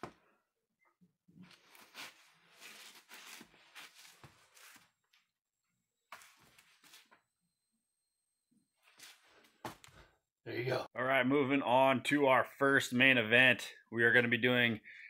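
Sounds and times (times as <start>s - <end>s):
sneakers scuffing on concrete floor: 1.5s - 5.0s, 6.1s - 7.2s, 8.8s - 10.1s.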